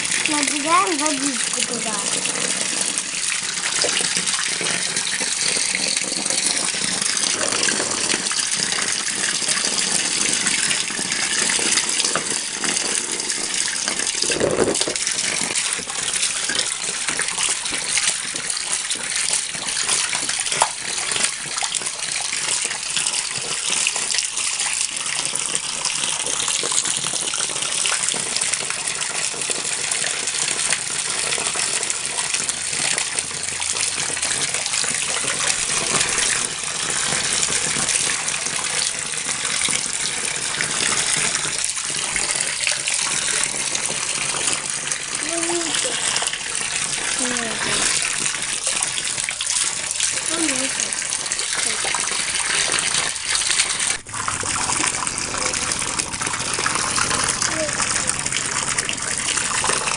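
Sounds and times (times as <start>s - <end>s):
hose water splashing into pool: 0.0s - 59.9s.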